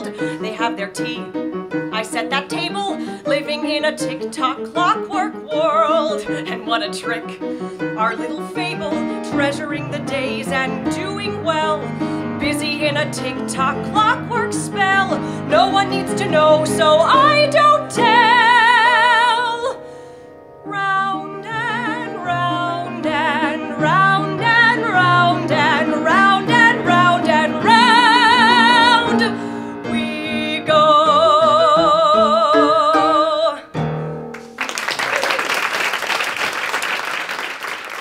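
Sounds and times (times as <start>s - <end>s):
woman singing with vibrato: 0.0s - 19.8s, 20.7s - 33.8s
audience applause: 34.4s - 38.0s.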